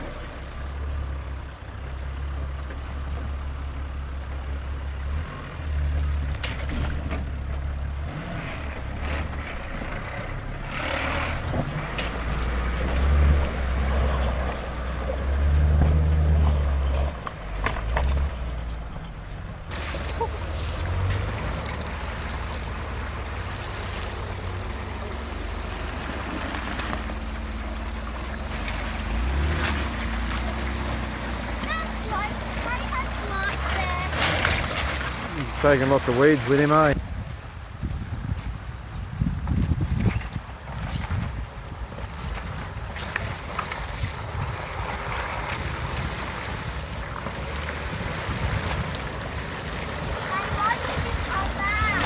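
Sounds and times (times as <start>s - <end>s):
engine running at low revs: 0.0s - 52.0s
tyres splashing through water: 5.0s - 37.9s, 38.8s - 52.0s
wind buffeting microphone: 36.8s - 47.1s.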